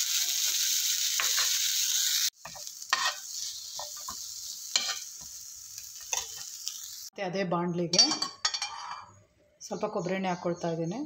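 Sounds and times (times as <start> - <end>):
vegetables sizzling in oil: 0.0 - 7.2
spatula scraping pan: 2.4 - 5.1, 8.4 - 9.2.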